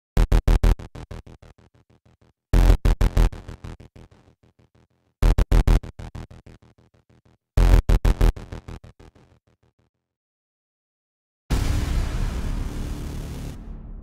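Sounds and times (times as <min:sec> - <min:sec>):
electronic stuttering pulse music: 0:02.6 - 0:04.2, 0:11.5 - 0:14.0.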